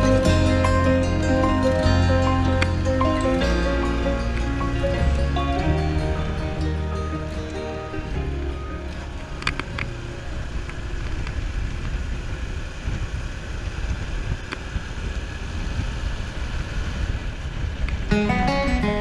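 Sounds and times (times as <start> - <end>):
music: 0.0 - 11.0, 18.1 - 19.0
small motorcycle engine running: 0.0 - 19.0
wind buffeting microphone: 0.0 - 19.0.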